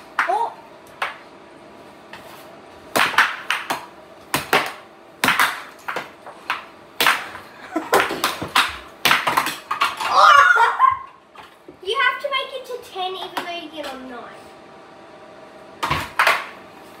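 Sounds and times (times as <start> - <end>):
air hockey puck clacking: 2.9 - 10.1, 13.2 - 14.0, 15.8 - 16.6.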